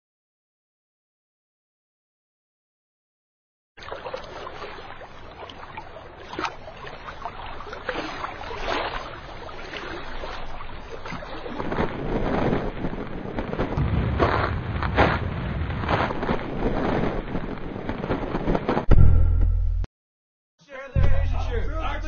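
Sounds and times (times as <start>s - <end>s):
water lapping around boats: 3.8s - 18.8s
wind: 3.8s - 19.5s.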